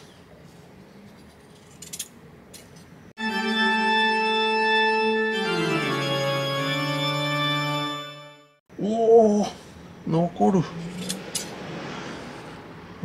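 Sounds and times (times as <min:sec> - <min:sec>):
organ-like keyboard chords: 0:03.2 - 0:08.6.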